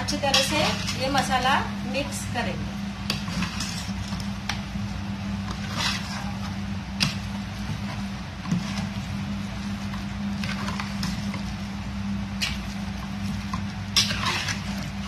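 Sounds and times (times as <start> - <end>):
steady low hum: 0.0 - 15.0
metal spoon scraping steel pot: 0.2 - 1.2, 13.9 - 14.8.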